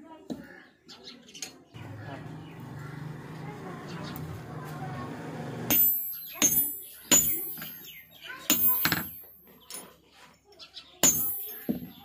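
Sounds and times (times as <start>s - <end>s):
hammer striking metal on anvil: 5.7s - 9.4s, 11.0s - 12.0s.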